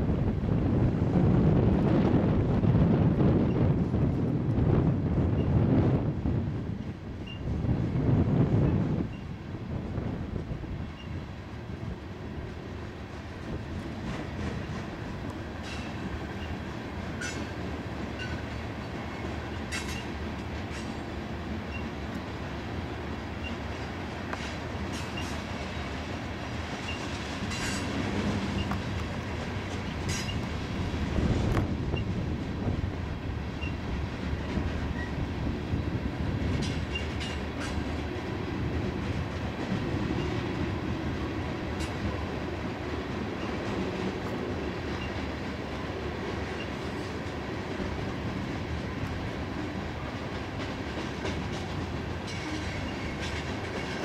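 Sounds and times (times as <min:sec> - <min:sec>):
train wheels rumbling on rails: 0:00.0 - 0:54.0
clicks and clanks of rail cars: 0:00.6 - 0:54.0.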